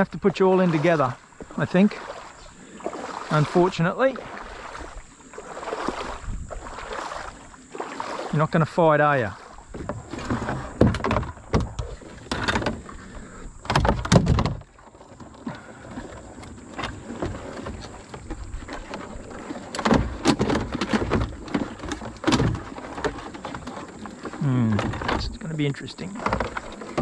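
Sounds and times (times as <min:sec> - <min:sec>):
plastic bucket bumping against hull: 0:09.4 - 0:27.0
net handle knocking against hull: 0:09.7 - 0:12.9, 0:13.6 - 0:15.4, 0:16.0 - 0:25.4, 0:26.1 - 0:27.0.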